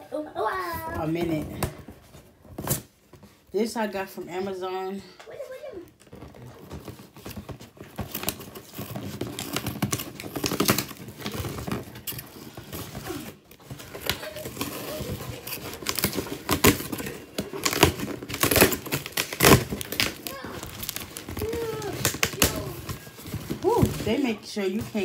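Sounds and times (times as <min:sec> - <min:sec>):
packaging crumpling and tearing: 0:06.0 - 0:25.0.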